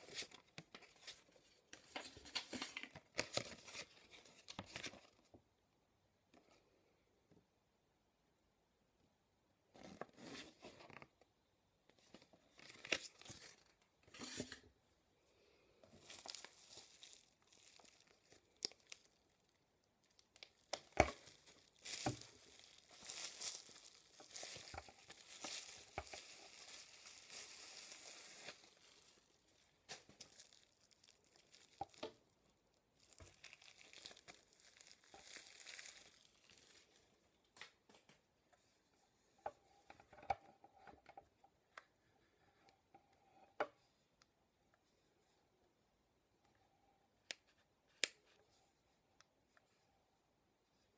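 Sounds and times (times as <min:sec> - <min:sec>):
plastic wrapper crinkling and tearing: 0:15.9 - 0:37.6
paper rustling: 0:20.6 - 0:32.1.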